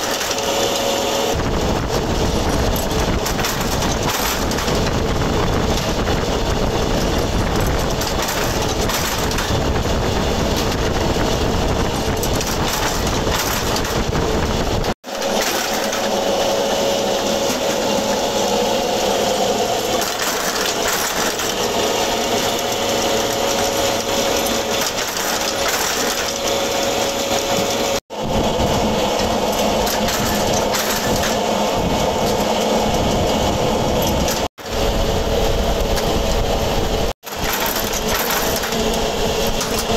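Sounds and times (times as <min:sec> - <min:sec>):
steady machine whine: 0:00.0 - 0:39.9
forging press clattering: 0:15.1 - 0:18.2.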